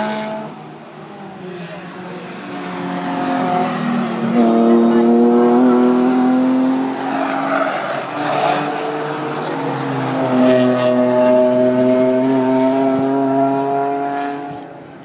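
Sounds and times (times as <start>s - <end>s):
racing car engine at high revs: 0.0s - 15.0s.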